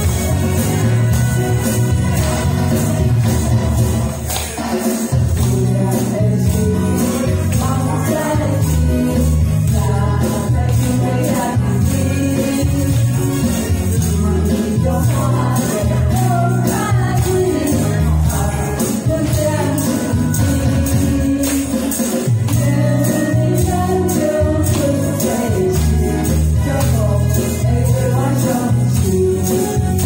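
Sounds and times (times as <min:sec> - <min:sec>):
jingling tambourine percussion: 0:00.0 - 0:30.0
karaoke backing track with beat: 0:00.0 - 0:30.0
women singing a duet: 0:05.2 - 0:21.8, 0:22.5 - 0:30.0.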